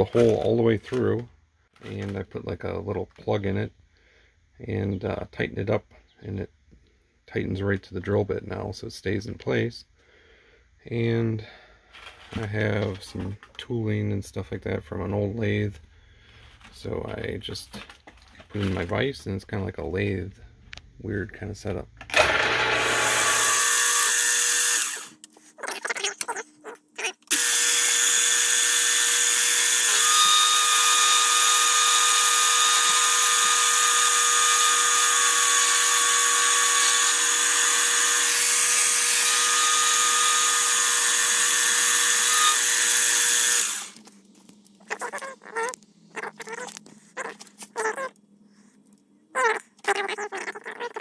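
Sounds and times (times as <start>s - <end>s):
motor hum: 22.1s - 25.2s, 27.3s - 48.1s.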